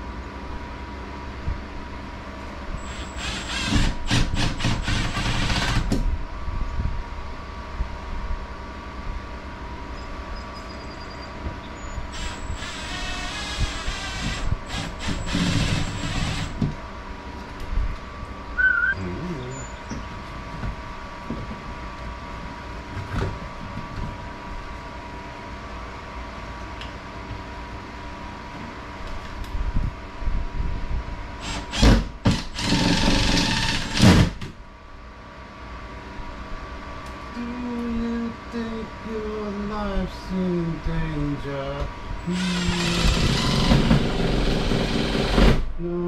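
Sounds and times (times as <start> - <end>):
cordless drill running: 2.8 - 5.9, 12.1 - 16.6, 31.4 - 34.3, 42.3 - 45.6
short high chirp: 18.6 - 19.8.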